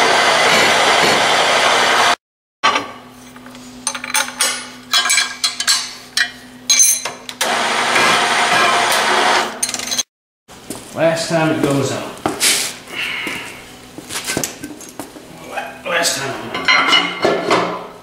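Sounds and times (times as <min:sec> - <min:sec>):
loud rushing machine noise: 0:00.0 - 0:02.2
wrench clinking on metal: 0:03.8 - 0:07.2.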